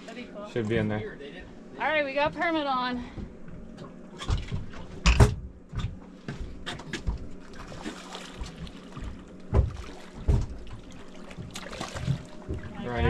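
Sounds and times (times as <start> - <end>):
water sloshing against boat hull: 2.1 - 13.0
knocks and thumps: 4.2 - 7.4, 9.5 - 10.8.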